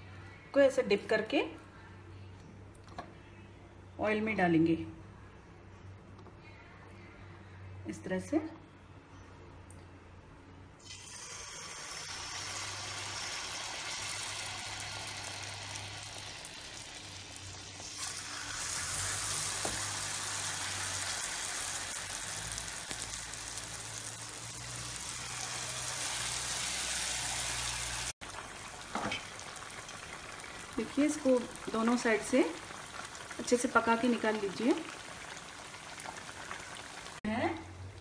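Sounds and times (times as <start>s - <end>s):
banana slices sizzling in hot oil: 10.8s - 37.2s.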